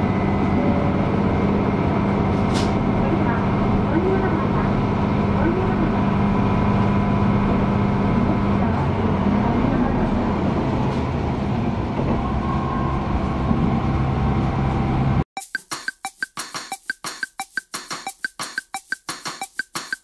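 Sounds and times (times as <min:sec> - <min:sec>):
railcar engine hum: 0:00.0 - 0:15.2
train rolling noise: 0:00.0 - 0:15.2
music with knocking beat: 0:15.4 - 0:20.0.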